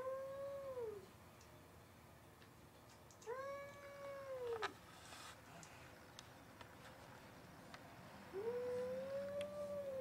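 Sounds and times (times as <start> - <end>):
cat yowling: 3.2 - 4.7, 8.4 - 10.0.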